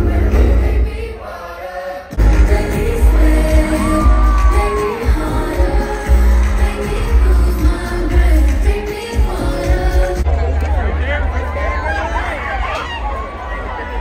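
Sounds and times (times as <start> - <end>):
live pop music with singer: 0.0 - 10.3
crowd cheering: 2.2 - 7.8, 10.2 - 14.0.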